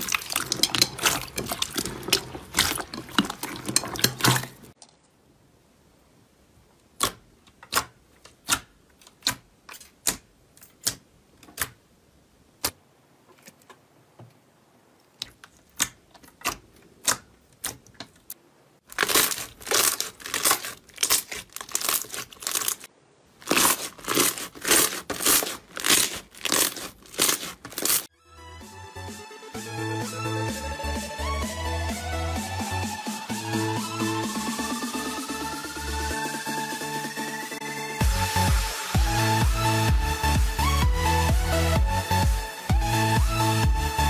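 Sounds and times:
slime crackling and squishing: 0:00.0 - 0:04.9, 0:15.1 - 0:28.1
slime squeezed with sticky pops: 0:19.0 - 0:22.8, 0:23.4 - 0:28.1
electronic music: 0:28.2 - 0:44.0.

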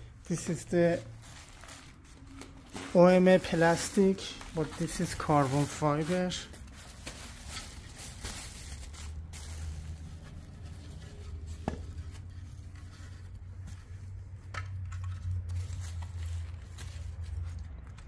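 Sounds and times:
bubble wrap and bag crinkling: 0:00.3 - 0:13.5.

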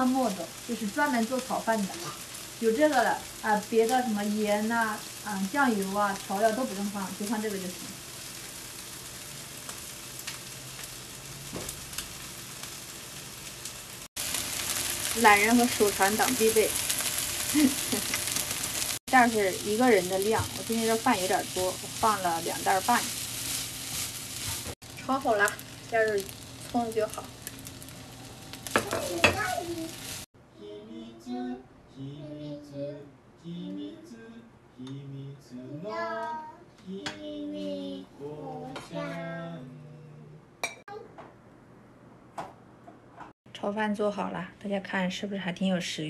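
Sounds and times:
fried rice sizzling in pan: 0:00.0 - 0:30.3
soft singing: 0:30.5 - 0:40.4
person speaking: 0:36.9 - 0:40.4.

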